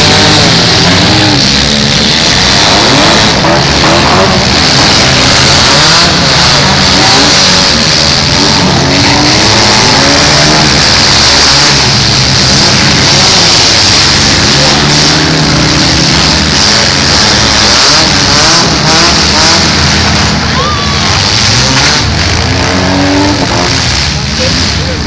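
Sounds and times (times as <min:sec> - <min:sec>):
car engines revving: 0:00.0 - 0:25.0.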